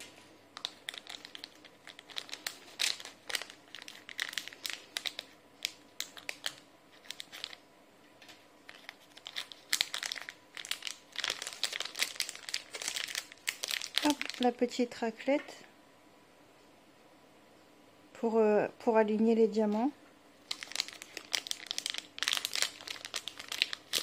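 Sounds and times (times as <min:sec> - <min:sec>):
plastic bag crinkling: 0:00.0 - 0:07.6, 0:08.2 - 0:14.8, 0:20.4 - 0:24.0.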